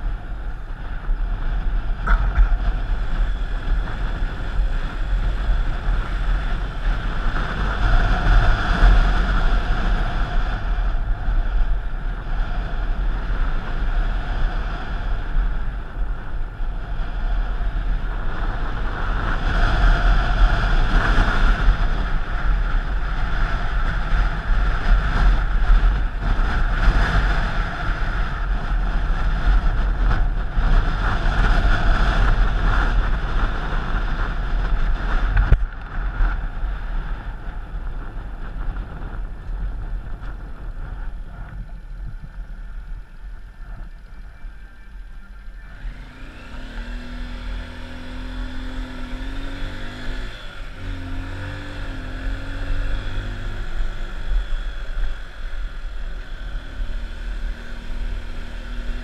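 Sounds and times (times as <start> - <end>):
low road rumble: 0.0 - 59.0
wind rushing over microphone: 0.0 - 59.0.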